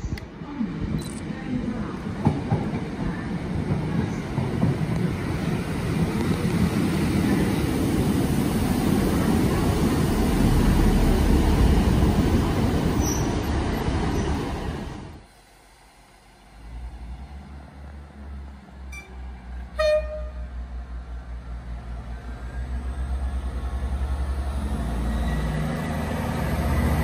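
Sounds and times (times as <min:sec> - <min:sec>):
train passing close: 0:00.0 - 0:27.0.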